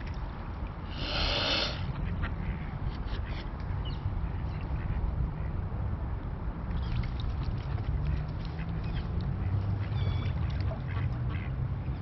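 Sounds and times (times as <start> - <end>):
swan hissing: 0.9 - 1.9.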